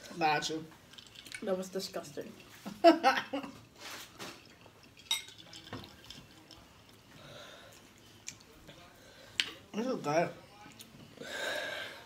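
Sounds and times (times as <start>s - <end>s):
glass jar clinks and knocks: 4.2s - 6.4s.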